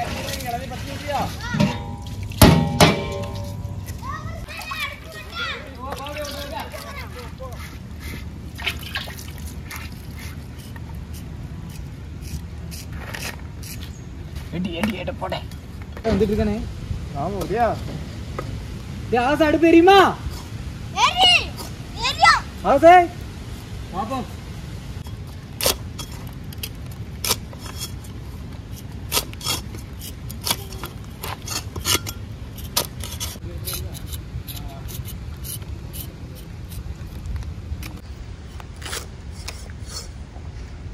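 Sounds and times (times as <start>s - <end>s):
water dripping and splashing: 0.0s - 11.8s.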